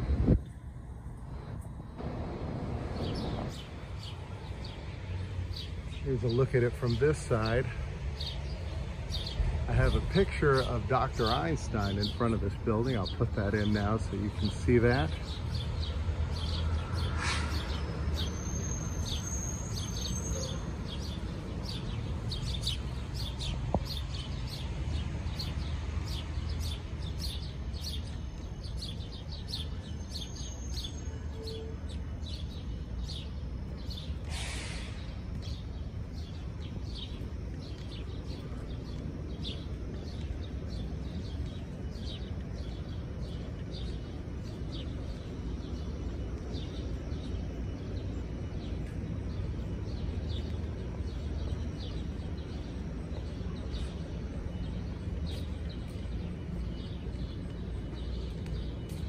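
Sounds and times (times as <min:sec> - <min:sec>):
low outdoor rumble: 0:00.0 - 0:59.0
small birds chirping: 0:02.8 - 0:59.0
brief hiss: 0:17.2 - 0:17.7, 0:34.2 - 0:35.2.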